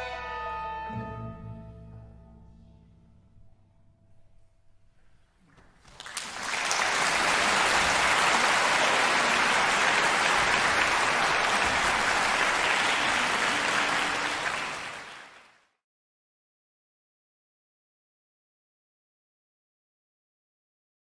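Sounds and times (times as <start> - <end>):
audience applauding: 5.8 - 15.6.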